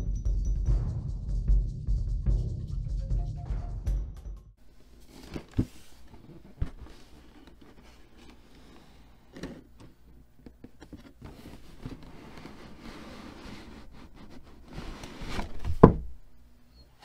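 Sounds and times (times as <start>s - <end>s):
cardboard scraping and rustling: 5.0s - 16.1s
cardboard box knocking on table: 15.6s - 16.1s.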